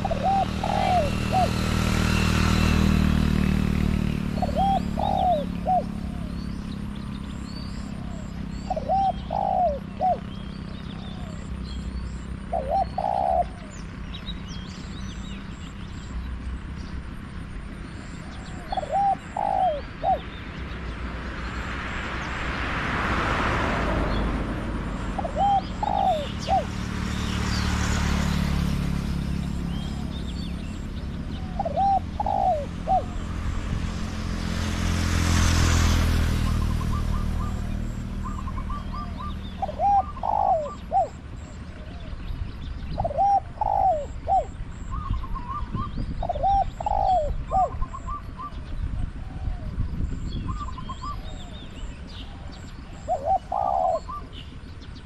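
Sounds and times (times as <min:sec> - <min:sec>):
dove cooing: 0:00.0 - 0:02.1, 0:04.3 - 0:06.5, 0:07.8 - 0:11.5, 0:12.4 - 0:13.9, 0:18.2 - 0:20.4, 0:24.8 - 0:26.9, 0:29.7 - 0:33.4, 0:36.5 - 0:42.2, 0:42.8 - 0:48.6, 0:52.2 - 0:54.4
passing vehicles: 0:00.0 - 0:55.0
small birds chirping: 0:00.0 - 0:55.0.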